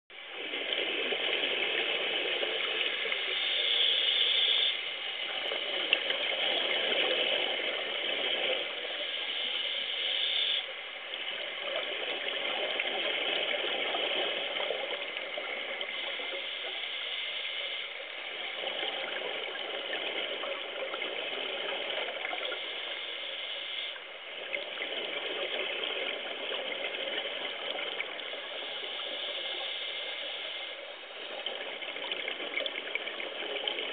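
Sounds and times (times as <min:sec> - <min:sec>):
gurgling exhaled bubbles: 0:00.2 - 0:04.3, 0:05.1 - 0:09.2, 0:10.5 - 0:16.8, 0:18.0 - 0:22.8, 0:24.3 - 0:33.9
regulator hissing inhalations: 0:02.4 - 0:05.2, 0:08.8 - 0:10.7, 0:15.8 - 0:18.2, 0:22.5 - 0:24.0, 0:28.3 - 0:31.0.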